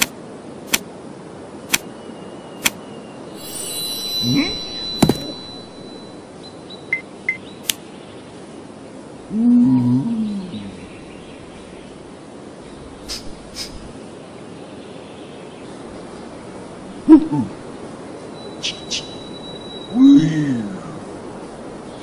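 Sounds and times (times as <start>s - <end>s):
steady background hiss: 0.0s - 22.0s
sharp knock: 5.0s - 5.4s.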